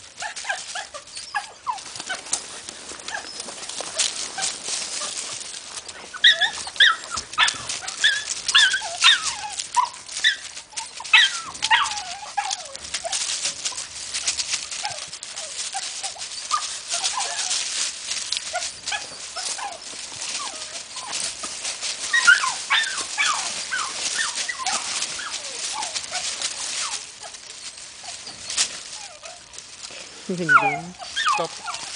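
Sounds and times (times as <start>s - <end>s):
dog digging through dry leaves: 0.0s - 31.9s
dog whimpering: 0.2s - 2.4s, 3.0s - 31.9s.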